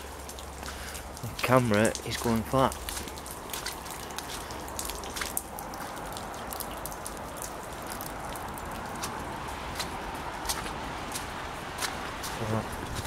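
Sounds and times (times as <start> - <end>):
footsteps on wet gravel: 0.0 - 13.0.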